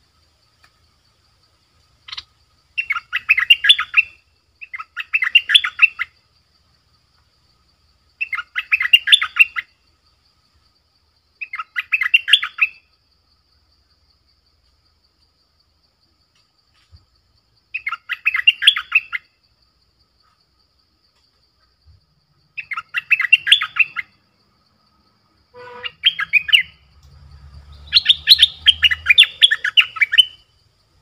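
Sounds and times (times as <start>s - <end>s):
bird chattering calls: 2.0s - 6.1s, 22.6s - 24.1s, 25.6s - 26.8s, 27.7s - 30.4s.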